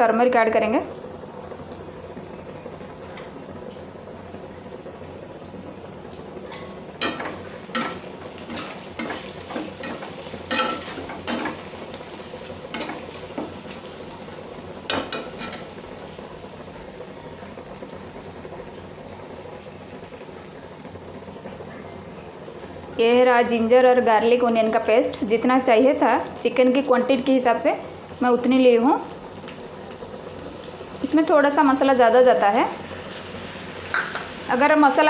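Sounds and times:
onions sizzling in oil: 0:00.0 - 0:35.0
spatula scraping pan: 0:07.0 - 0:11.9, 0:14.9 - 0:15.7.

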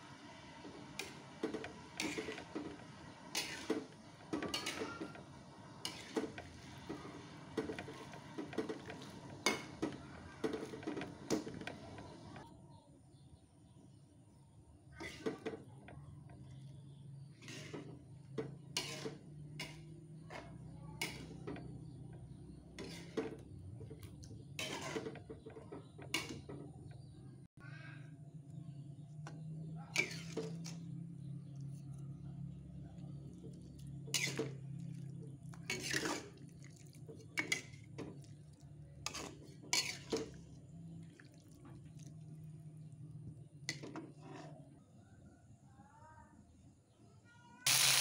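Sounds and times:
spatula scraping wok: 0:00.0 - 0:12.4, 0:15.0 - 0:27.0, 0:29.9 - 0:31.9, 0:33.8 - 0:36.6, 0:39.0 - 0:40.6, 0:43.7 - 0:44.7.

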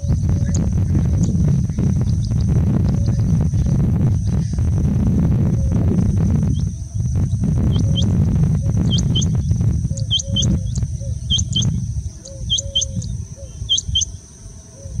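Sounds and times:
loud low rumble: 0:00.0 - 0:12.1
quail mating call: 0:07.4 - 0:14.1.

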